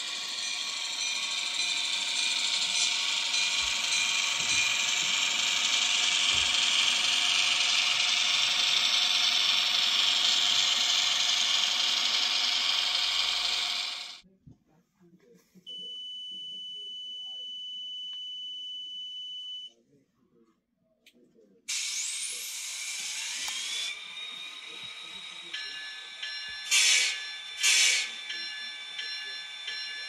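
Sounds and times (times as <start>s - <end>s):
model train motor whirring: 0.0s - 14.2s, 21.7s - 30.0s.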